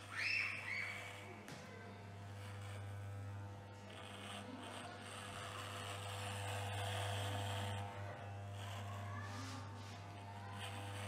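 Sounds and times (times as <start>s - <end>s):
electric hair clippers buzzing: 0.0s - 11.0s
clipper blades rasping through hair: 0.6s - 11.0s.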